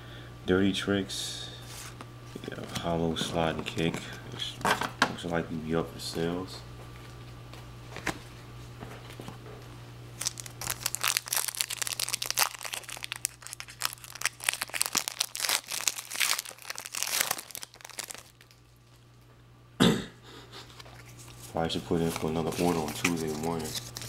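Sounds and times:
foil wrapper crinkling and tearing: 10.2s - 19.0s, 20.8s - 24.0s.

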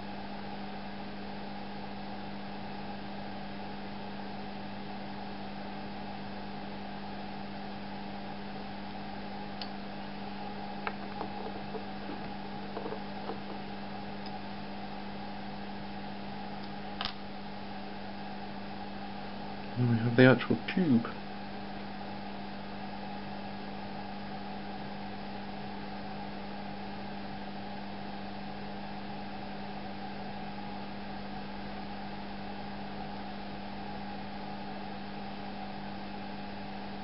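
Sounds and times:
steady background hum: 0.0s - 37.0s.

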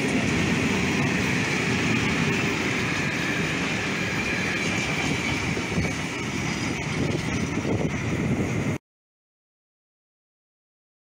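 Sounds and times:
train wheels rumbling on rails: 0.0s - 8.8s.

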